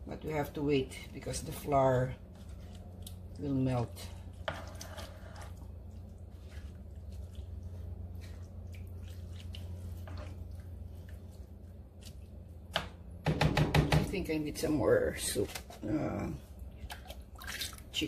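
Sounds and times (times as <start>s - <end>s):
steady low hum: 0.0s - 18.0s
spatula stirring thick sauce: 1.1s - 12.8s
spatula scraping pan: 3.6s - 7.2s, 9.2s - 10.5s.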